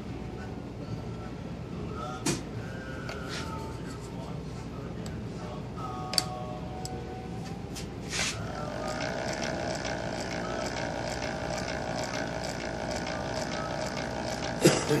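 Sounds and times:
milling machine cutting metal: 8.5 - 15.0
rapid even ticking: 8.6 - 14.6.

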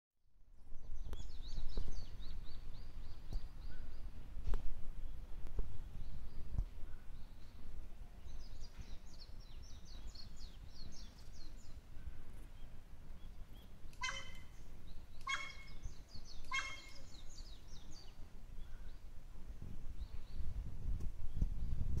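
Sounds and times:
small birds twittering: 0.7 - 4.3, 4.9 - 22.0
crow barking calls: 14.0 - 14.6, 15.2 - 15.8, 16.4 - 17.2.

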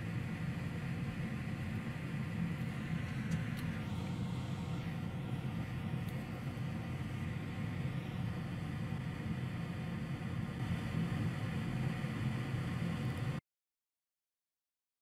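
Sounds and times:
steady low machine hum: 0.0 - 13.4.

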